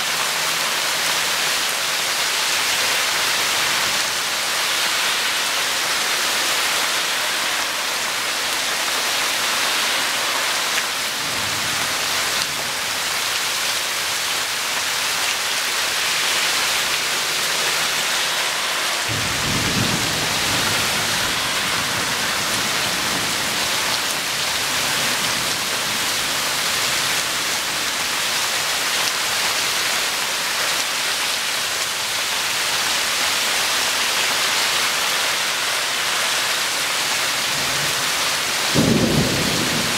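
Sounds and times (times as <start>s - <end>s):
rain falling: 0.0s - 39.9s
thunder rumbling: 15.4s - 27.6s, 38.7s - 39.9s.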